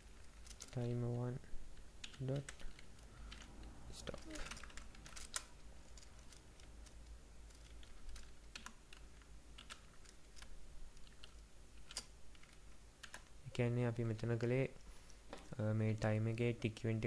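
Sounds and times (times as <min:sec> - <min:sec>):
computer keyboard keystrokes: 0:02.0 - 0:13.3.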